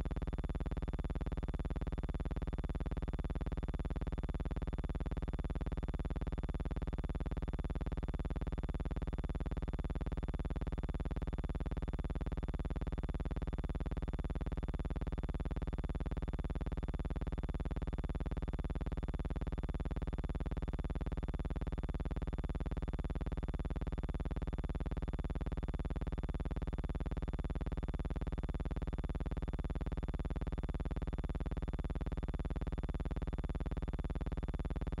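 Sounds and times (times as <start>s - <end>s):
steady pulsing buzzing drone: 0.0s - 35.0s.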